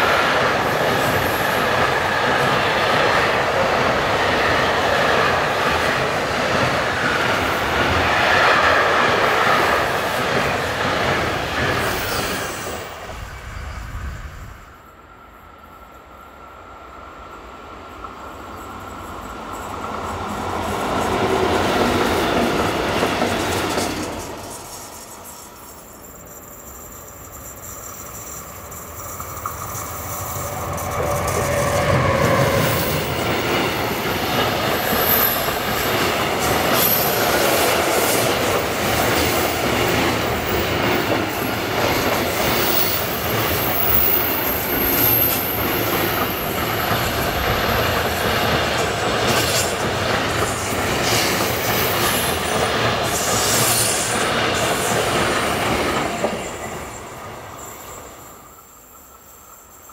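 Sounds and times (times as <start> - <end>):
train wheels rumbling and clattering: 0.0 - 14.8, 17.9 - 59.9
high wheel squeal: 23.7 - 38.0, 39.0 - 47.8.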